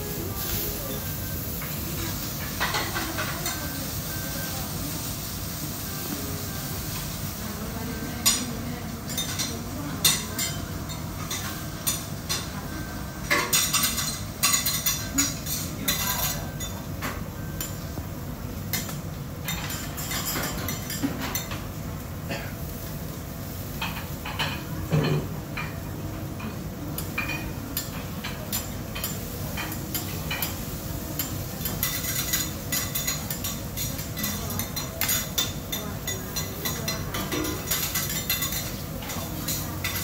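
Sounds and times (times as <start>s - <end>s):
metal utensils and dishes clinking: 0.3s - 4.5s, 13.2s - 17.8s, 18.7s - 21.6s, 27.0s - 40.0s.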